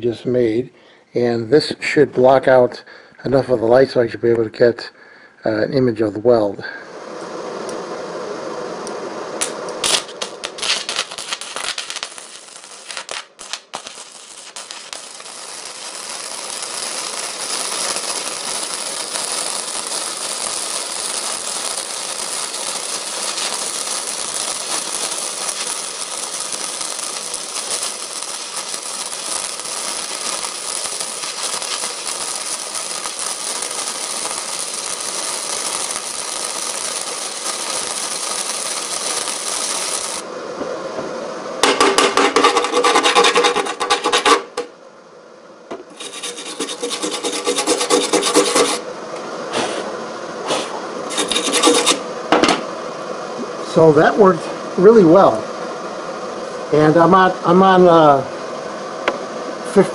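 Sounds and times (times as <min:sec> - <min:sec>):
welding arc crackling: 0:09.4 - 0:40.3, 0:41.6 - 0:44.7, 0:45.7 - 0:52.7.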